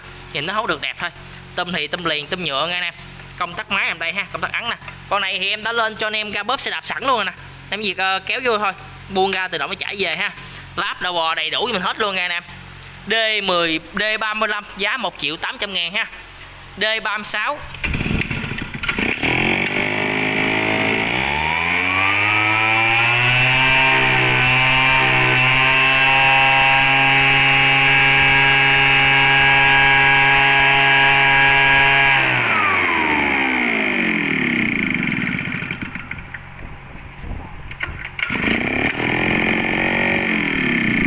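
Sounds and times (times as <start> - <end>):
two-stroke blower engine revving: 17.7 - 36.2, 38.2 - 41.0.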